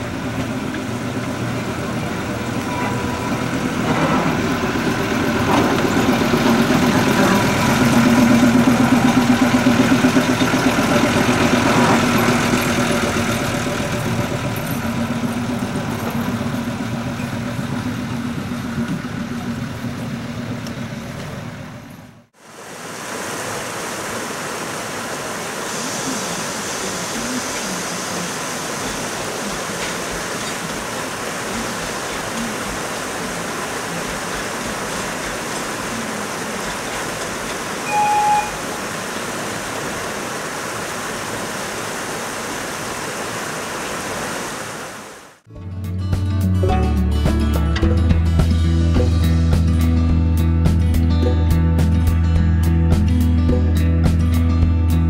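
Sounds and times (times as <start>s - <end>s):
locomotive engine running: 0.0s - 22.3s, 26.1s - 40.2s.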